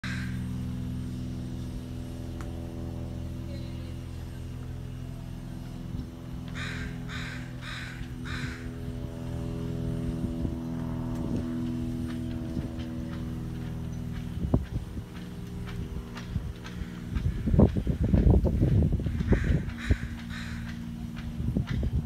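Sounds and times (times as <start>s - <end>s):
crow cawing: 0.0s - 0.4s, 6.5s - 8.8s, 19.2s - 20.8s
low mechanical hum: 0.0s - 22.0s.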